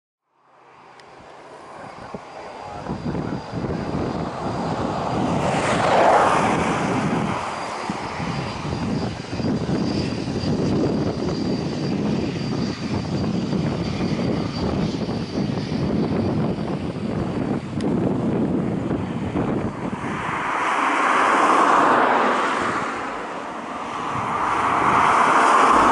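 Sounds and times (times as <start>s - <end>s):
thin high whine: 0.4s - 16.6s
jet engines rumbling: 0.4s - 25.9s.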